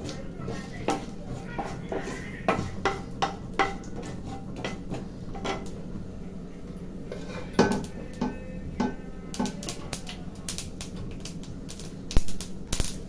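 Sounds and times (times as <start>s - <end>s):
steel dishes clattering: 0.0s - 5.7s
wooden spatula knocking on frying pan: 0.0s - 5.7s, 7.6s - 10.2s.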